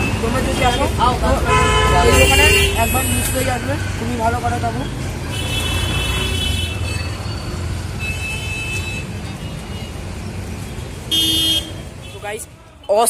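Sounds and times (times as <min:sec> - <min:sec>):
traffic engine rumble: 0:00.0 - 0:13.0
vehicle horn honking: 0:00.6 - 0:03.6, 0:08.0 - 0:09.9, 0:11.1 - 0:12.3.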